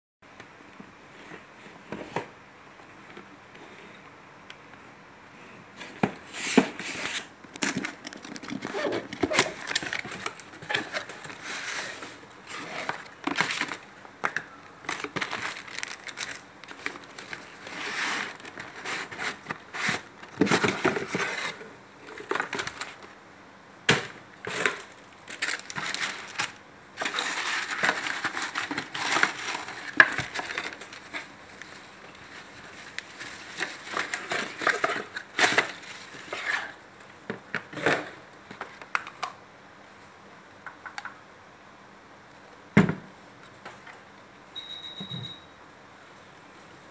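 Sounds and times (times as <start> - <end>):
paper rustling and crinkling: 5.8 - 13.9, 14.7 - 23.1, 24.4 - 36.8.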